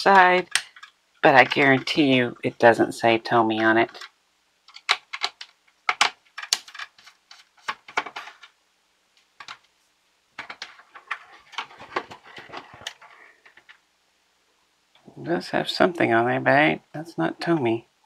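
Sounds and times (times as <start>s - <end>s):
light plastic rattling: 10.4s - 13.8s.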